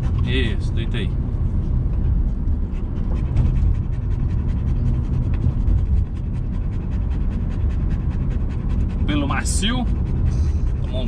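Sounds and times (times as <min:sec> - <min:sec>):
dog panting: 0:00.0 - 0:01.0, 0:01.8 - 0:11.0
car engine and road noise: 0:00.0 - 0:11.0.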